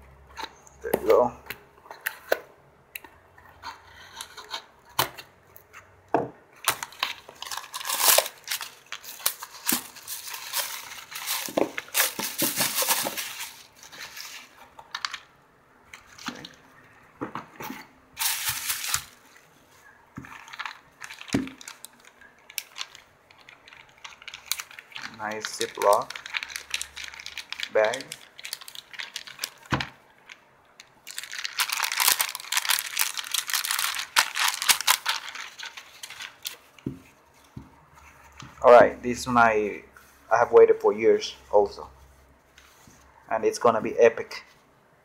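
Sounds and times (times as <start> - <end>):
bubble wrap and plastic crinkling: 6.6 - 15.3, 17.8 - 38.9.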